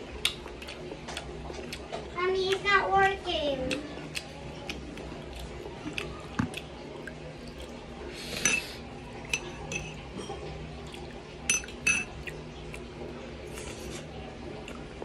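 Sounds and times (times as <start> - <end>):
spoon clinking on ceramic bowl: 9.3 - 10.4, 11.5 - 12.1.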